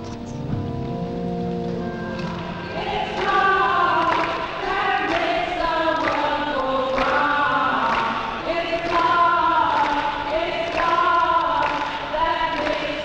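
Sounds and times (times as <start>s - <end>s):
hand claps: 2.2s - 13.0s
women singing in chorus: 2.6s - 13.0s.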